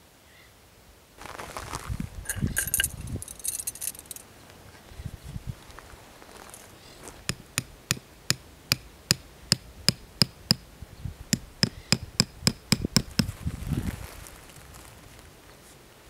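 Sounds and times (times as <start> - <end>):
hatchet striking stake: 7.2 - 10.7, 11.3 - 13.3.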